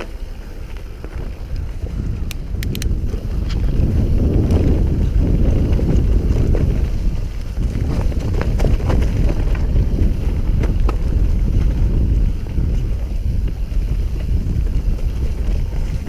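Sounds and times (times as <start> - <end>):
sharp clicks and ticks: 0.0 - 4.7
bike tyres rumbling over dirt: 0.0 - 16.0
wind buffeting microphone: 0.0 - 16.0.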